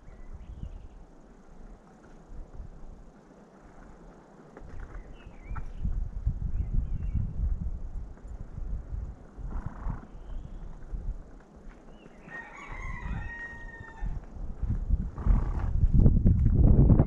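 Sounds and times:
rooster crowing: 12.2s - 14.3s.

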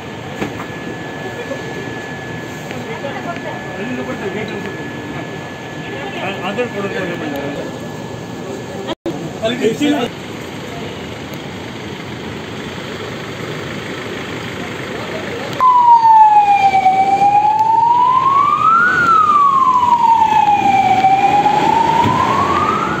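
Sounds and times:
emergency siren wailing: 0.0s - 8.7s, 15.4s - 23.0s.

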